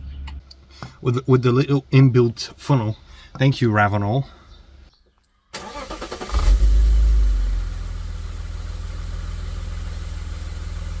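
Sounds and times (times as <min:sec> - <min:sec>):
car engine starting and idling: 0:05.5 - 0:11.0.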